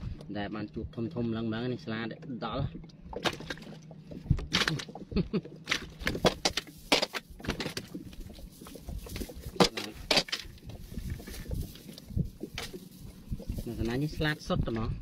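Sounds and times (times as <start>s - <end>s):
fishing net rustling: 3.1s - 14.4s
sharp clicks and knocks: 9.0s - 12.8s.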